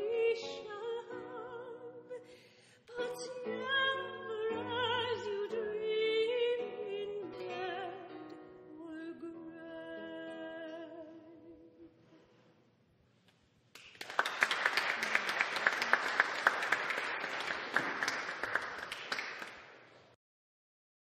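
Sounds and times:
woman singing with vibrato: 0:00.0 - 0:02.3, 0:02.9 - 0:11.9
audience applause: 0:13.8 - 0:19.9.

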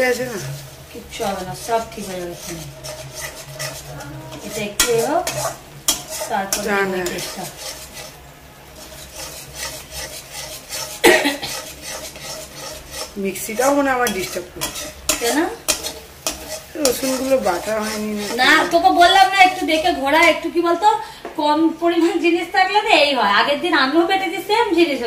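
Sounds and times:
spatula scraping a pan: 0:00.0 - 0:20.8
paste sizzling: 0:00.0 - 0:21.0.

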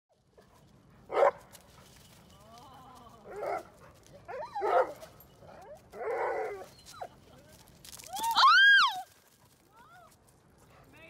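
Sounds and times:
dogs barking: 0:01.1 - 0:01.4, 0:04.3 - 0:05.0
dogs whining: 0:04.3 - 0:07.2.

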